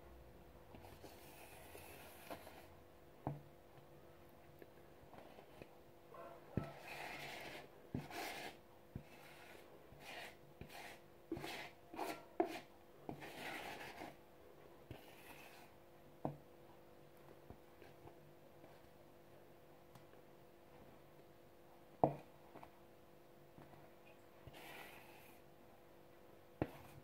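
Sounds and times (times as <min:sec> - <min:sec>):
spatula scraping plastic bowl: 0:06.6 - 0:14.2.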